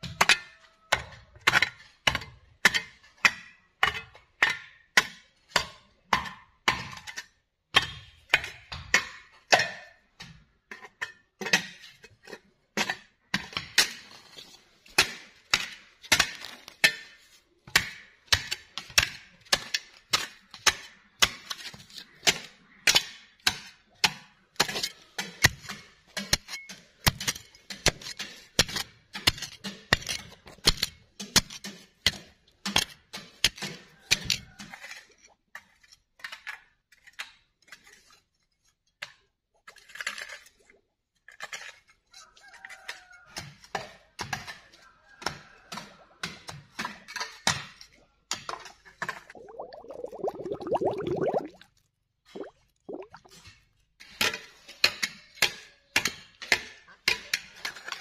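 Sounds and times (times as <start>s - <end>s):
hand hoe chopping earth: 14.9s - 35.0s.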